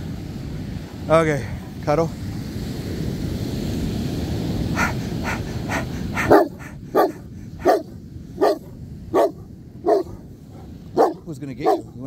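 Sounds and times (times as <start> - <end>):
wind: 0.0 - 12.0
dog barking: 4.8 - 12.0.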